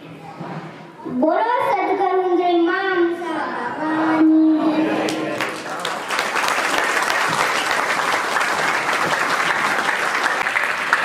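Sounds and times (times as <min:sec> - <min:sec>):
audience clapping: 0:05.0 - 0:11.0.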